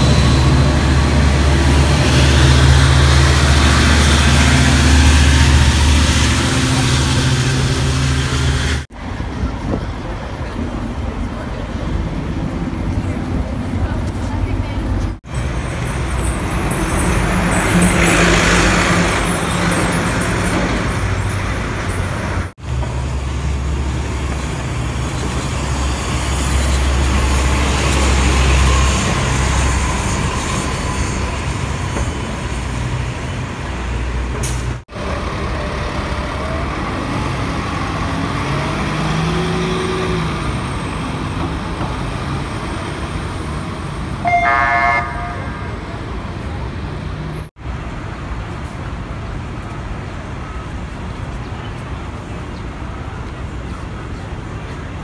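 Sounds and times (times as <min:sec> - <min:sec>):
bus engines running: 0:00.0 - 0:55.0
road noise: 0:00.0 - 0:55.0
vehicle horn toot: 0:44.2 - 0:45.8.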